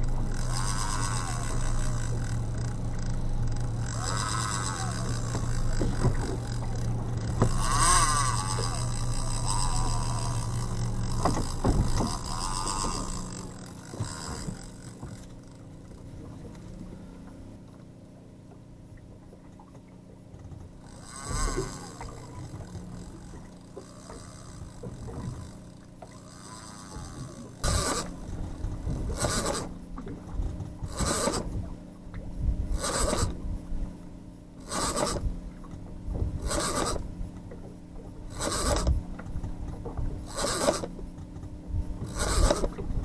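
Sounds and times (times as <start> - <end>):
outboard motor running: 0.0 - 43.0
wind noise on microphone: 30.4 - 33.7.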